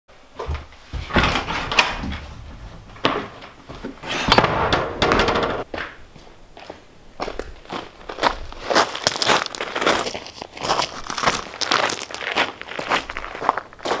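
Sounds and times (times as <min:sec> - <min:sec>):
knocks: 0:00.4 - 0:05.7
footsteps on gravel: 0:00.5 - 0:04.1, 0:05.7 - 0:14.0.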